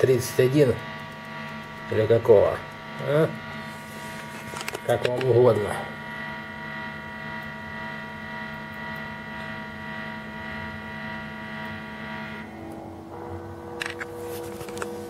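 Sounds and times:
electric guitar droning whine: 0.0 - 15.0
low hum: 0.0 - 15.0.

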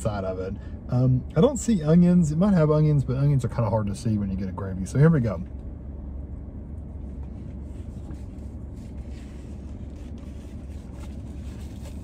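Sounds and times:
car heater blowing: 0.0 - 12.0
faint rustles and clicks: 6.7 - 12.0.

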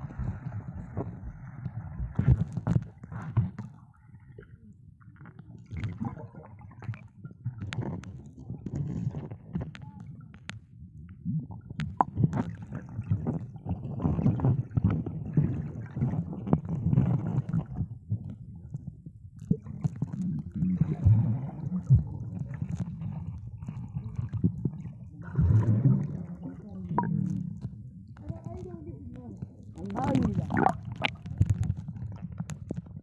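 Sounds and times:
underwater rumbling: 0.0 - 33.0
water gurgling surges: 24.0 - 27.6, 29.8 - 31.1.

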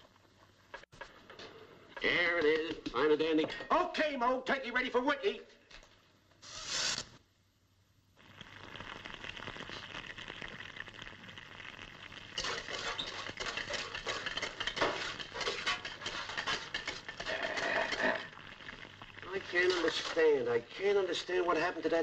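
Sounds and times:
fire crackling and sizzling: 6.4 - 7.2, 8.2 - 22.0.

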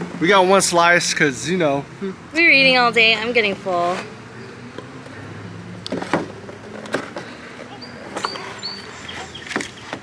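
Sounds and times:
bird chirping: 7.7 - 10.0.

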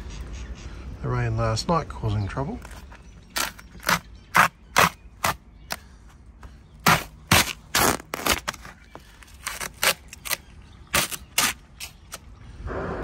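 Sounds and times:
peel ply tearing: 2.6 - 5.8, 6.8 - 12.3.

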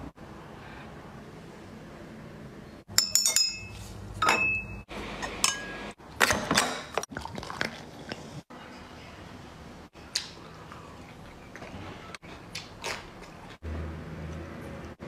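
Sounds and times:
glass bottles clinking: 2.9 - 5.9.

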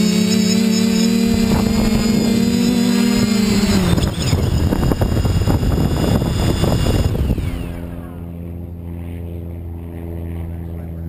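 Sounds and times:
drone motors whirring: 0.0 - 8.4
low hum: 0.1 - 11.0.

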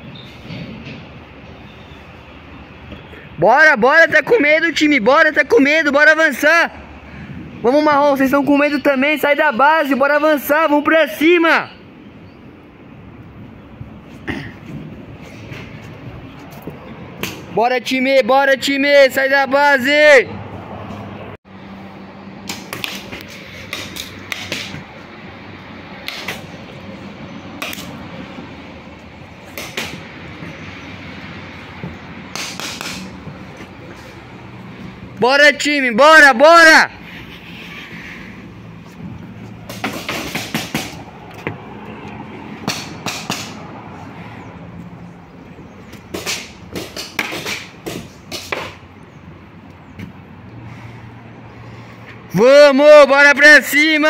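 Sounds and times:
paintball shots popping: 22.5 - 24.8, 32.3 - 33.1, 46.1 - 48.8.

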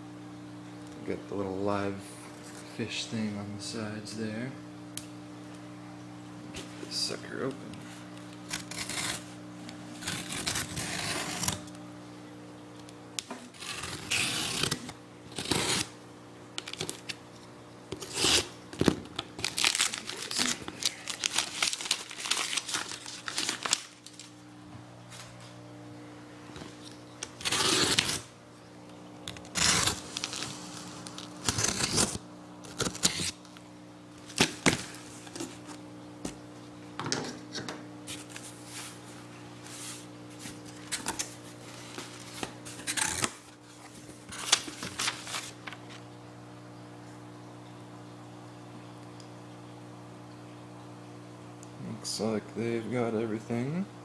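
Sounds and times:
tape and plastic tearing and crinkling: 8.3 - 11.7, 13.2 - 15.9, 16.6 - 17.2, 17.9 - 24.4, 26.6 - 28.3, 29.3 - 33.6, 34.2 - 35.8, 40.4 - 46.0
utility knife cutting packing tape: 8.4 - 9.2, 10.0 - 11.7, 13.6 - 15.9, 18.0 - 18.5, 27.2 - 28.3, 29.4 - 33.4, 42.8 - 43.5.

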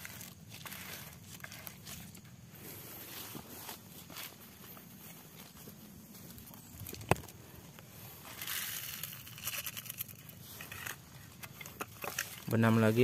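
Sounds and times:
small ticks and crackles: 0.0 - 2.4, 6.2 - 13.0
granules pouring into soil: 8.2 - 11.0.

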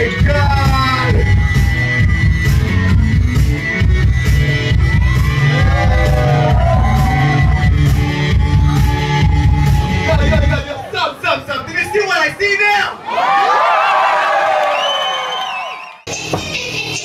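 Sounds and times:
loud dance music with bass: 0.0 - 10.6
people shouting and whooping: 4.8 - 12.3, 13.0 - 16.0.

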